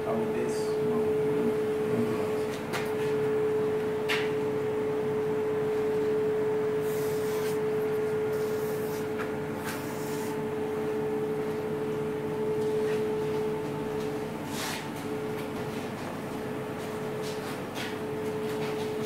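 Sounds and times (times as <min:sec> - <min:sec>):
steady machine hum: 0:00.0 - 0:19.0
hand rubbing across table: 0:06.8 - 0:10.4.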